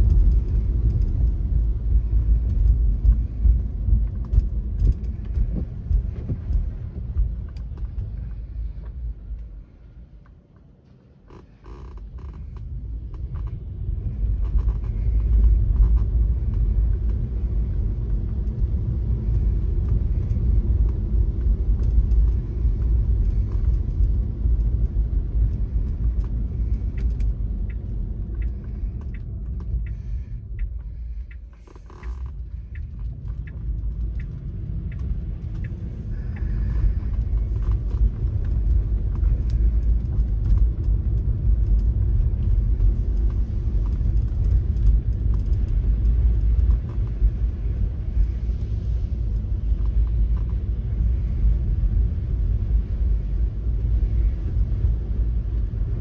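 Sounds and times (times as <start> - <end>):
car driving on wet road: 0.0 - 10.1, 11.4 - 56.0
light ticks: 11.3 - 53.0.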